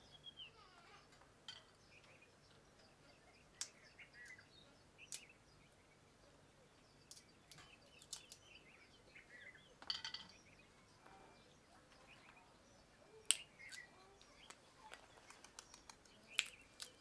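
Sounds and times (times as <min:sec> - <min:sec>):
faint bird chirps: 0:00.0 - 0:17.0
peanut shells cracking: 0:07.1 - 0:08.5, 0:13.2 - 0:17.0.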